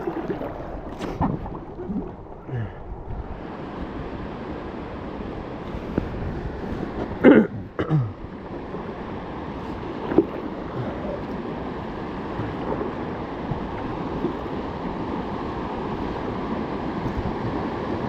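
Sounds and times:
wind on microphone: 0.0 - 7.8, 9.6 - 18.0
river water rushing: 0.0 - 18.0.

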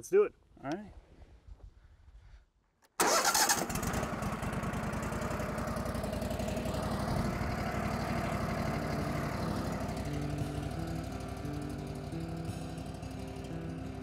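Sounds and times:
sawmill engine running: 3.0 - 14.0.

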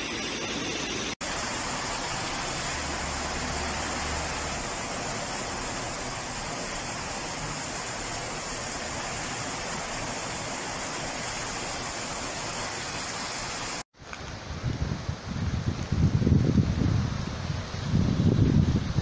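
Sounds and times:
floodwater rushing: 0.0 - 13.8
wind buffeting microphone: 14.3 - 19.0.

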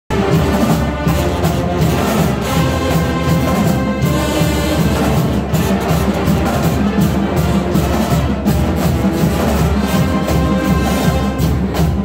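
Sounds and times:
brass band playing: 0.1 - 12.0
cymbals: 0.1 - 12.0
flutes and clarinets: 0.1 - 12.0
snare tenor and bass drums: 0.1 - 12.0.

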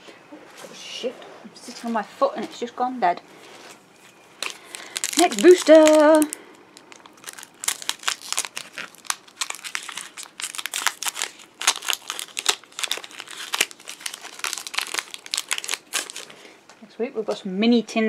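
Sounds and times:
foil wrapper crinkling: 4.4 - 16.6.

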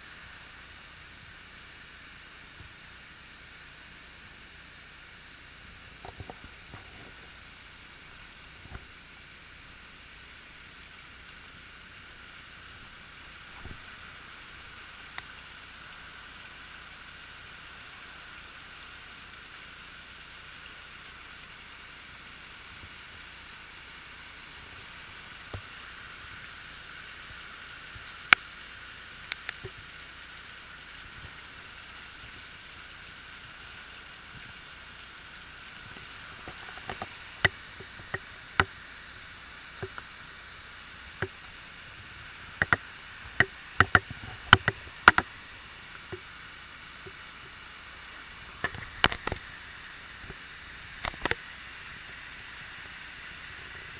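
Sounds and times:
waterfall hiss: 0.0 - 53.9
sharp clicks: 42.5 - 45.3.

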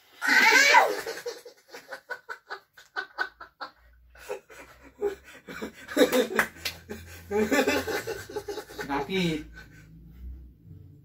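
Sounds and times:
faint breaths and chuckles: 3.7 - 6.0
person laughing: 4.2 - 9.8.

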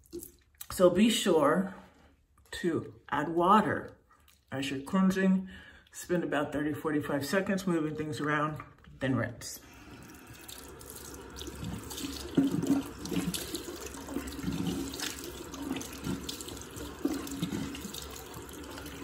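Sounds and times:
water running from tap: 0.0 - 0.5, 9.7 - 19.0
water splashing on face: 10.1 - 19.0.

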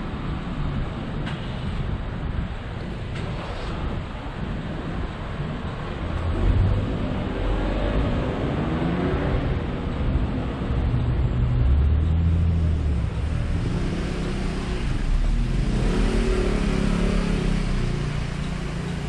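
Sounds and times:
vehicle engine passing: 6.2 - 19.0.

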